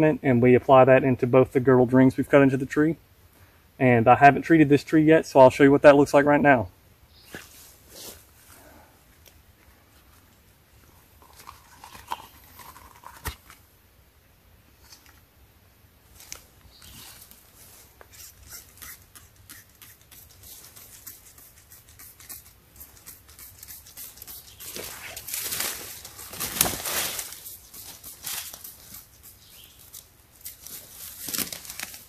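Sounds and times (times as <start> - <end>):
spray bottle squirts: 18.1 - 24.7
footsteps rustling dry leaves: 23.9 - 32.0.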